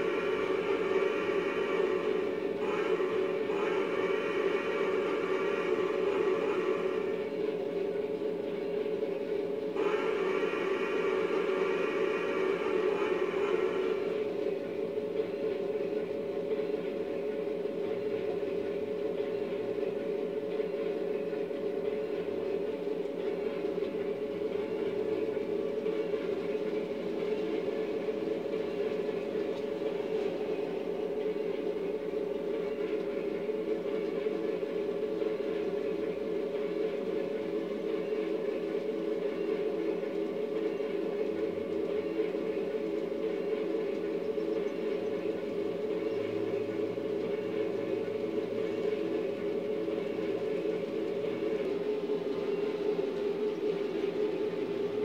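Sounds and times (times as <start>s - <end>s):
model train motor whirring: 0.0s - 7.4s, 9.8s - 14.2s
model train rolling on track: 0.0s - 55.0s.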